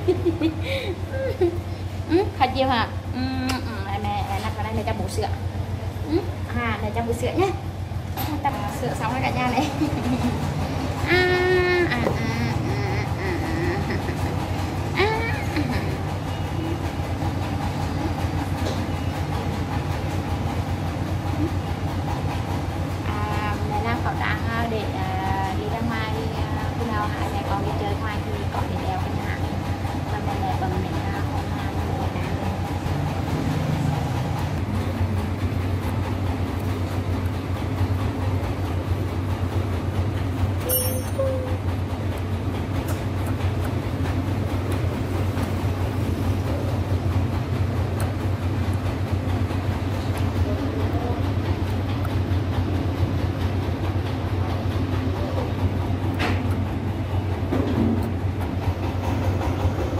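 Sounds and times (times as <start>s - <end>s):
loud low rumble with flutter: 0.0s - 59.9s
high squeak: 40.6s - 41.6s.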